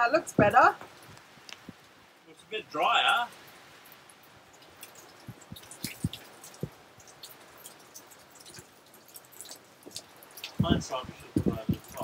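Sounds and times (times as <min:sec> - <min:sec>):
rain dripping: 0:00.0 - 0:12.0
water plops: 0:03.8 - 0:12.0.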